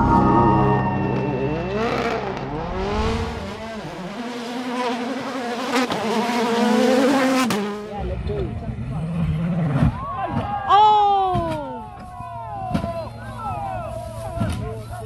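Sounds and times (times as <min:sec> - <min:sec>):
car engine accelerating hard: 0:01.3 - 0:09.9.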